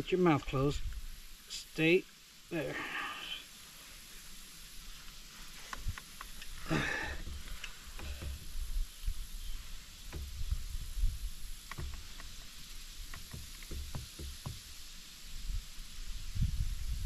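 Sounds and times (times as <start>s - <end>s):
faint steady hiss: 0.0s - 17.0s
light knocks and bumps of gear: 11.7s - 12.5s.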